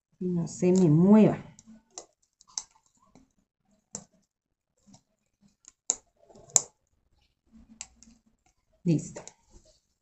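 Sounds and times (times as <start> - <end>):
hands clicking craft materials: 0.7 - 6.8.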